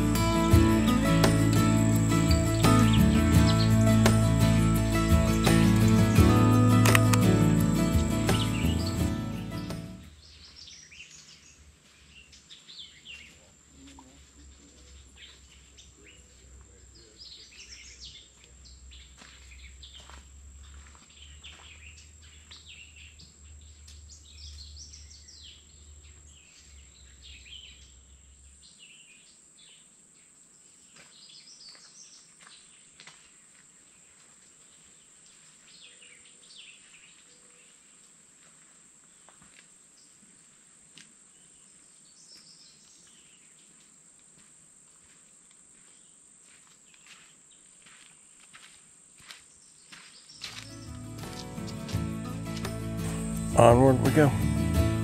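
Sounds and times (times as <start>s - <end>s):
high-pitched insect drone: 0.0s - 9.7s
birds chirping: 0.0s - 29.9s, 49.5s - 55.0s.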